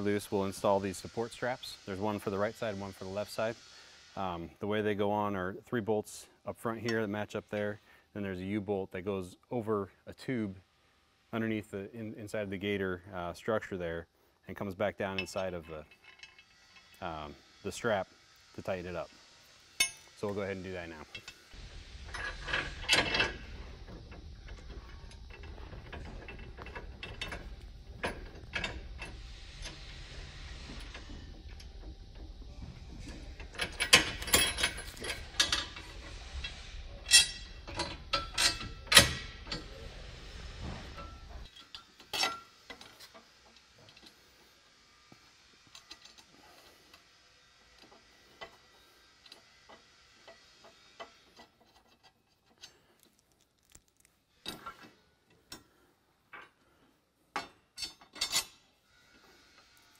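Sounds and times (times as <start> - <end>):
steady low hum: 9.8 - 49.4
metal bolts clicking and clinking: 22.0 - 29.8, 33.0 - 39.7, 41.0 - 43.2, 57.3 - 58.7
metal clanks: 37.0 - 39.7.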